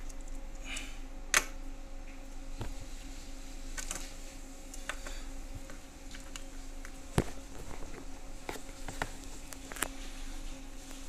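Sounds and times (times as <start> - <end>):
low buzzing hum: 0.0 - 11.0.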